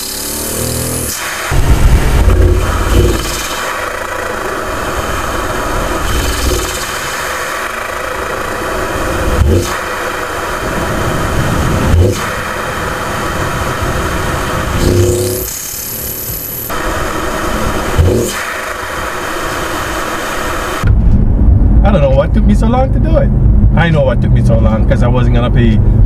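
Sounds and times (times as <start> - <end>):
engine intake rush: 0.0 - 20.8.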